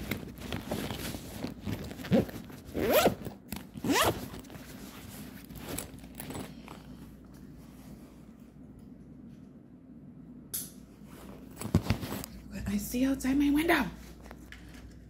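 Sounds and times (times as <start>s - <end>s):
zipper being pulled: 0.0s - 6.8s
handling rustling and clicks: 0.0s - 7.6s, 11.2s - 12.5s.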